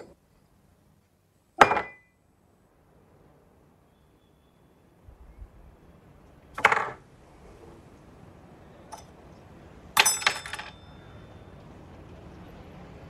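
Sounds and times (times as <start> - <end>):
glass clinking: 1.6 - 2.1, 10.0 - 11.0.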